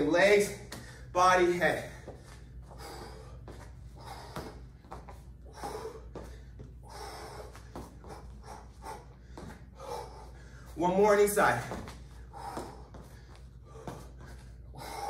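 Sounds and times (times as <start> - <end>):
man breathing hard: 0.6 - 10.8, 11.4 - 15.0.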